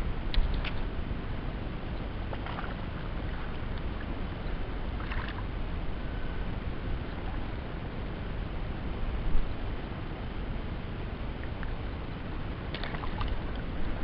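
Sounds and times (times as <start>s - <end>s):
wind rumble on microphone: 0.0s - 14.0s
small waves lapping: 2.2s - 5.8s, 12.7s - 14.0s.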